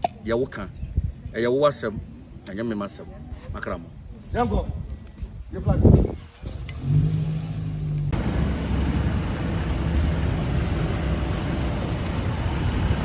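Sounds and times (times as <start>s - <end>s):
car engine and tyres on paving: 6.0s - 13.0s.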